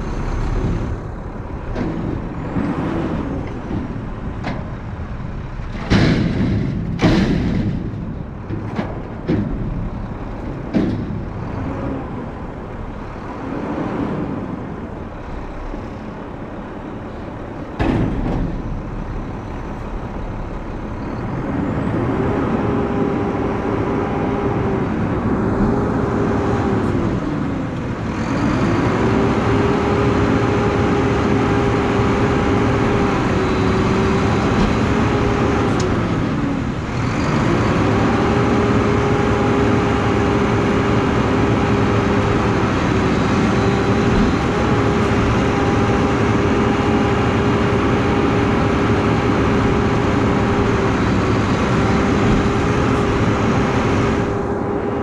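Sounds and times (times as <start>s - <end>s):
diesel engine revving: 0.0s - 55.0s
hydraulics whining: 0.0s - 55.0s
dumpster banging against hopper: 0.3s - 13.2s, 16.7s - 23.0s, 41.5s - 48.0s.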